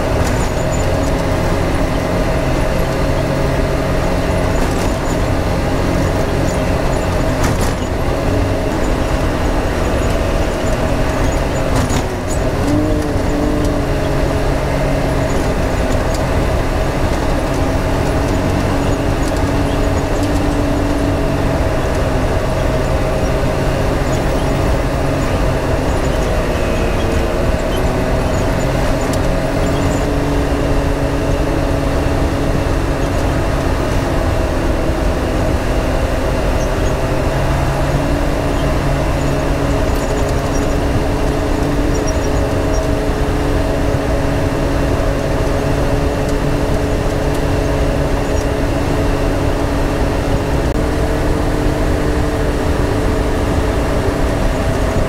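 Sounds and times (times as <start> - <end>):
tyre and rattle noise: 0.0 - 55.0
utility vehicle engine running: 0.0 - 55.0.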